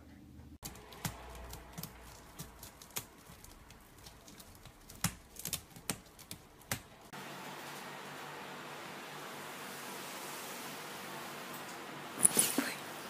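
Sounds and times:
cat clawing wicker basket: 0.6 - 7.1.

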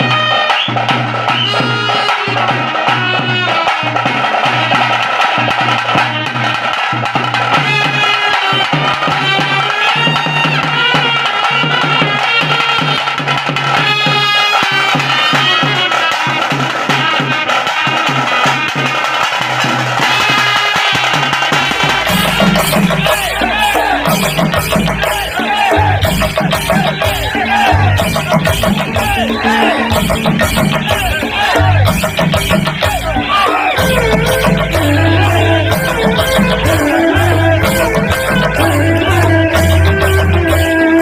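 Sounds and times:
folk dance music: 0.0 - 41.0
steady drumbeat: 0.0 - 41.0
high melody: 20.1 - 41.0
repeating bass line: 21.8 - 40.6.

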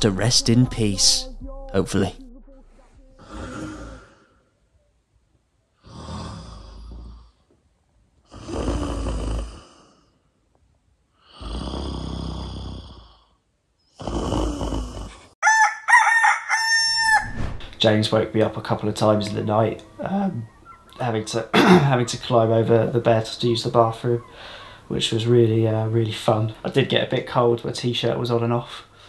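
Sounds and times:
person snoring: 2.7 - 4.5, 5.8 - 7.4, 8.3 - 10.2, 11.2 - 15.3
rooster crowing: 15.4 - 17.4.

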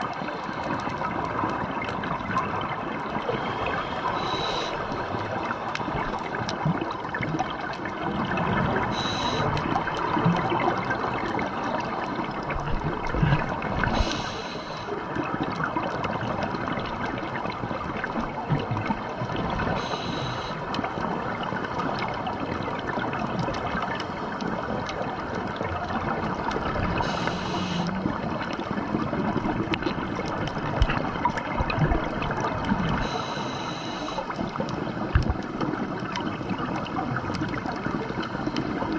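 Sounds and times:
bubbling exhaled air: 2.7 - 6.4, 26.6 - 36.0
regulator breath hiss: 3.9 - 5.0, 8.9 - 9.6, 14.0 - 14.9, 19.8 - 20.6, 27.0 - 28.0, 33.0 - 34.2.

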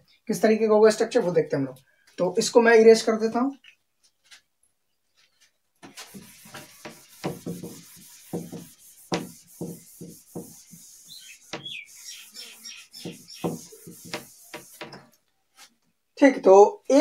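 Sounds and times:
cloth rubbing whiteboard: 5.8 - 15.7.

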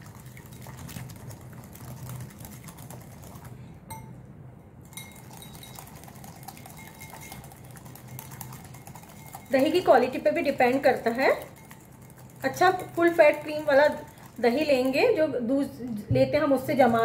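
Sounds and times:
whisk clicking against glass bowl: 4.8 - 15.2.

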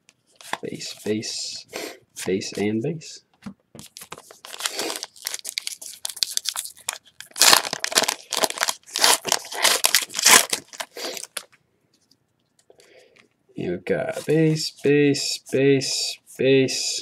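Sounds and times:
foil wrapper tearing and crinkling: 4.0 - 11.5.

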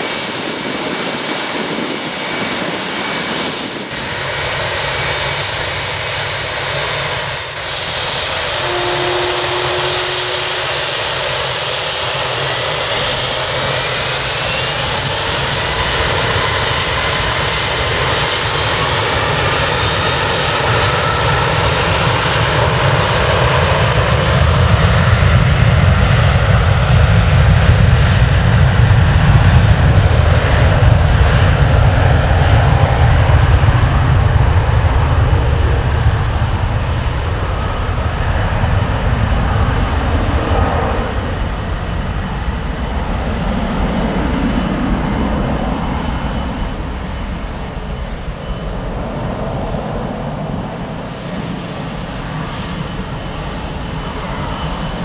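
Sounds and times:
jet engines roaring: 0.0 - 55.0
deep rumble: 20.2 - 55.0.

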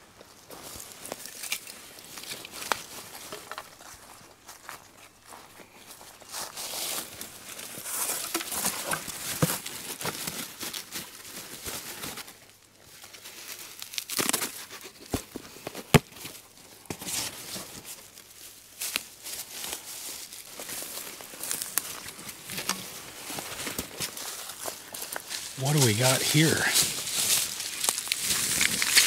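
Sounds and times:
plastic crinkling and rustling: 6.3 - 29.0.

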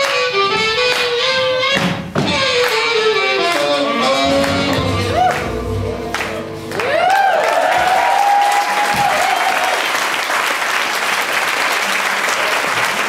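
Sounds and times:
audience applauding: 4.4 - 13.0
person cheering whoop: 5.0 - 5.6, 6.8 - 10.0.

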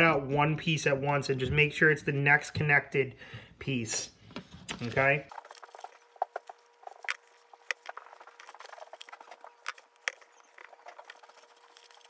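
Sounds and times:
paper rustling: 4.2 - 12.0
scissors snipping paper: 5.3 - 12.0.

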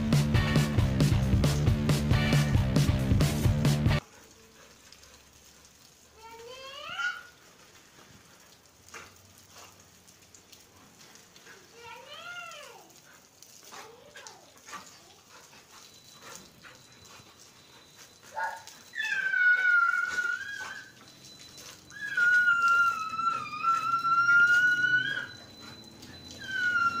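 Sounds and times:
dog whining: 13.7 - 27.0.

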